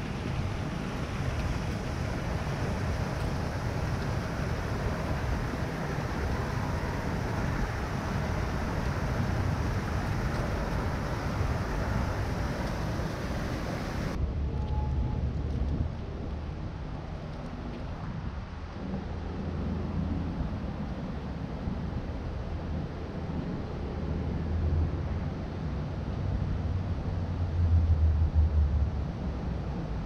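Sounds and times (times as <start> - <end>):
wind buffeting microphone: 0.0 - 25.1
low traffic rumble: 0.0 - 30.0
high hiss: 2.2 - 14.2.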